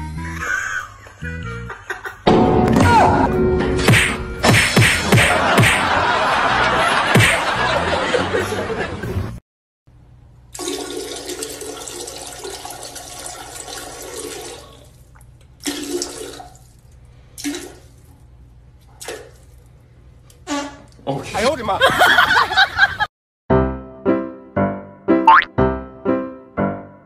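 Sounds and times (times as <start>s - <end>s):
toilet flushing: 10.5s - 18.1s.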